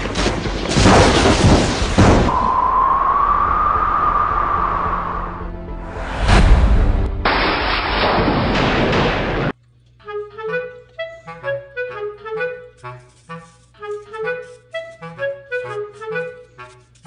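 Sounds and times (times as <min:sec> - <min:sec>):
loud burst of noise: 0:00.1 - 0:09.5.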